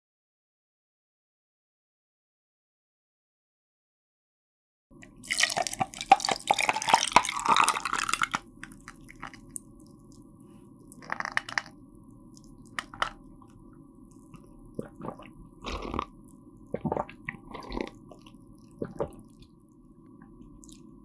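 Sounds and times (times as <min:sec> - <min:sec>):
water pouring into glass mug: 0:05.1 - 0:09.4.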